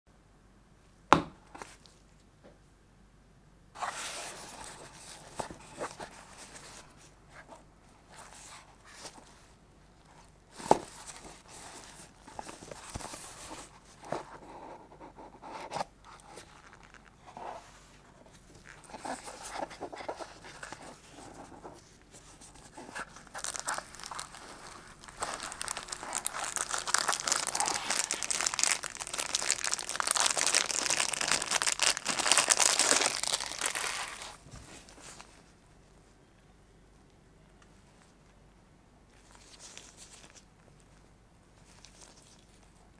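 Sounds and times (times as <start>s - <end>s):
plastic wrap crinkling: 22.6s - 35.3s.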